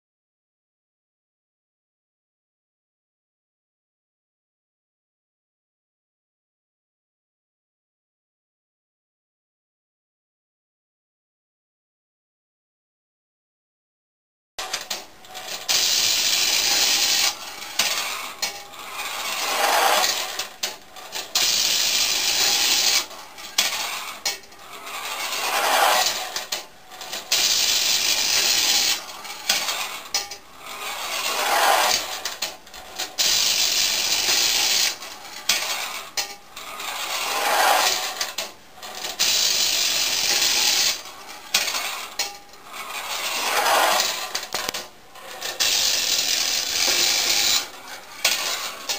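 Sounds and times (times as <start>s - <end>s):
toy mechanism clicks: 14.6s - 36.4s, 37.8s - 42.5s, 43.1s - 48.9s
toy tram grinding whirr: 14.6s - 48.9s.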